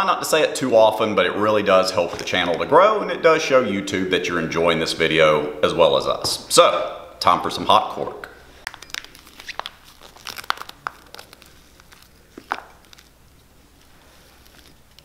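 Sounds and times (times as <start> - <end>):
plastic bag crinkling: 8.5 - 15.0
cork granules crunching and scraping: 8.6 - 15.0.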